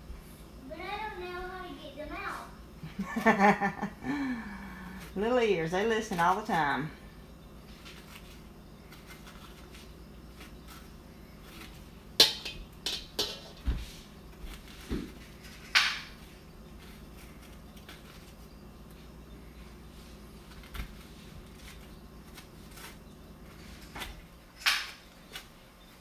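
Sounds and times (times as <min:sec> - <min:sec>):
metal spoon scraping zucchini: 0:08.9 - 0:13.6
spoon knocking metal bowl: 0:12.2 - 0:13.6.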